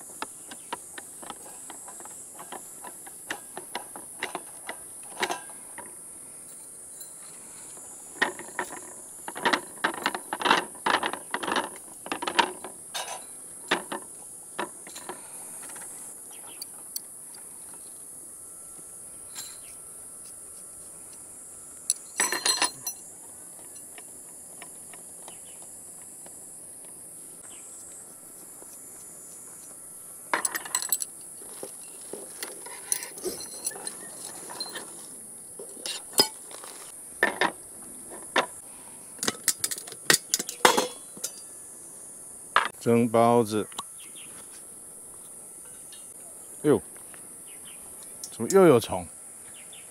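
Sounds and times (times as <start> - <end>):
steady high-pitched hiss: 0.0 - 49.9
metal camp gear clinking: 0.8 - 7.4, 8.2 - 17.8, 19.3 - 19.7, 21.9 - 26.2, 30.3 - 38.5, 39.2 - 41.5.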